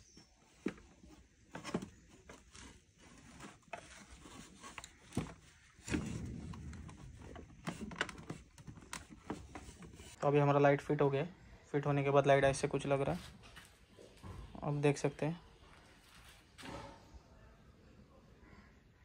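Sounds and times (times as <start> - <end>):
plastic rubbing and scraping: 0.1 - 10.2
plastic parts clicking and knocking: 0.5 - 10.2.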